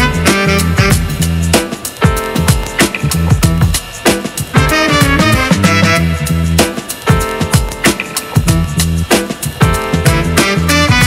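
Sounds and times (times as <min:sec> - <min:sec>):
latin dance music with brass: 0:00.0 - 0:02.4, 0:04.6 - 0:07.4, 0:09.7 - 0:11.0.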